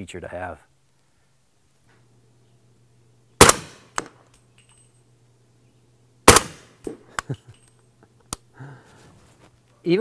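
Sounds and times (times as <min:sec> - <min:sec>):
rifle shots with echo: 0:03.4 - 0:04.2, 0:06.2 - 0:06.9.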